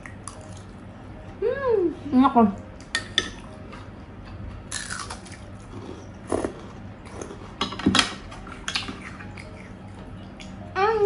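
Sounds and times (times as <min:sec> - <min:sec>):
spoon clinking against dishes: 0:02.8 - 0:03.5
crunching and chewing: 0:04.7 - 0:07.6.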